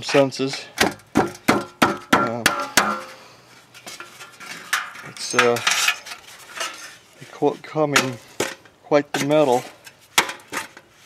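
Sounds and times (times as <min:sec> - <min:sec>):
hammer tapping sheet metal: 0:00.8 - 0:03.2.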